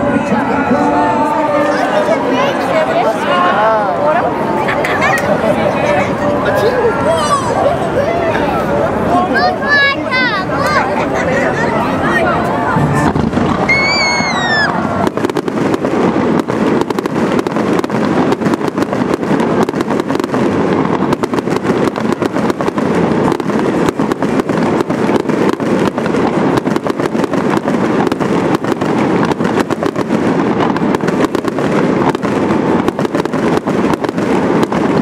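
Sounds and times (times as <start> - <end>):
fireworks crackling and popping: 0.0 - 35.0
falling firework whistle: 12.9 - 15.4.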